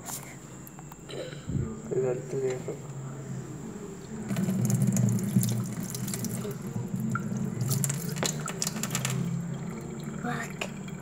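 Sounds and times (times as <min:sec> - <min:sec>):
water running from a tap: 0:04.3 - 0:11.0.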